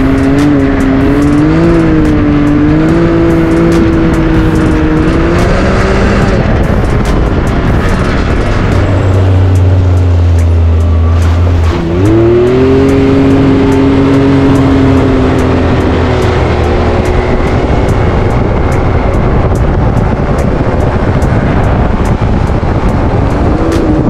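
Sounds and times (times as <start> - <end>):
quad engine running: 0.0 - 24.0.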